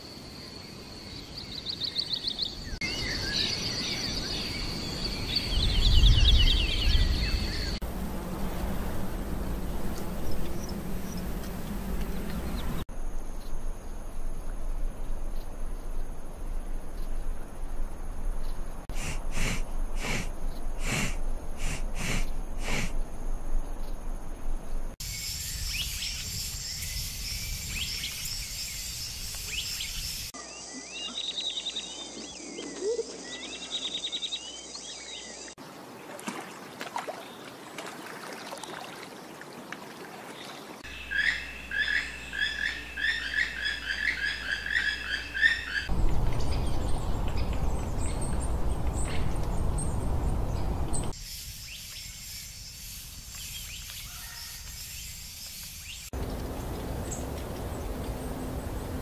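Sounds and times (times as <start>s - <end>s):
high insect chorus: 0.0s - 36.0s, 40.8s - 59.0s
steady rushing noise: 18.9s - 22.9s.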